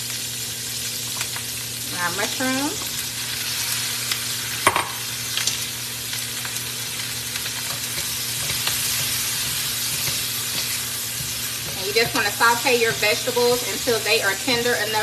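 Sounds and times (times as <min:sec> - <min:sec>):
vegetables sizzling in a wok: 0:00.0 - 0:15.0
spatulas scraping wok: 0:07.3 - 0:15.0.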